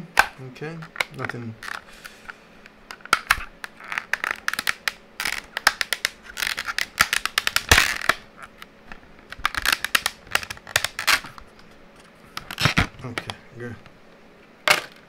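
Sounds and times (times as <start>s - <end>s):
plastic packaging crackling: 2.9s - 8.6s, 9.2s - 11.4s.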